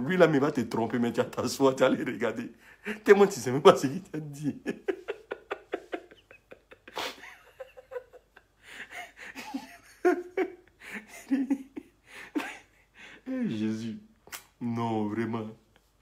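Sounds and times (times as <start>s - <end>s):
man stifling laughter: 4.4s - 12.9s.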